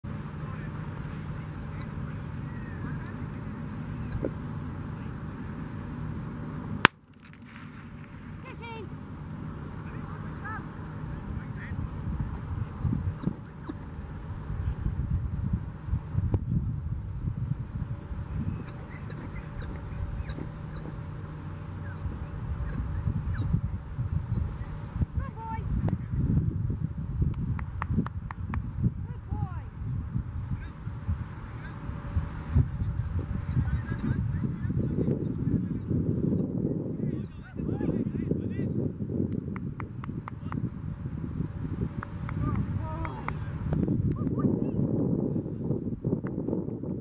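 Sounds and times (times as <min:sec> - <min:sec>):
insect buzz: 0:00.0 - 0:47.0
wind rumbling on microphone: 0:00.0 - 0:47.0
bird chirps: 0:00.5 - 0:04.4, 0:09.8 - 0:15.2, 0:16.6 - 0:26.8, 0:30.4 - 0:38.0.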